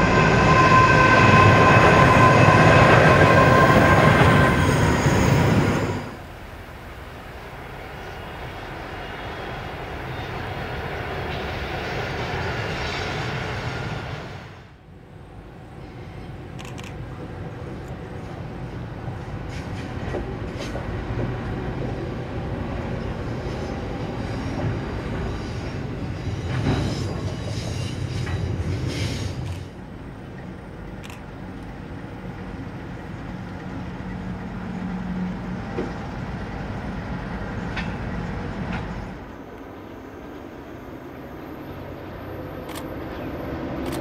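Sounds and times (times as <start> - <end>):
freight train rumbling past: 0.0 - 44.0
train wheel clicks on rail: 42.6 - 44.0.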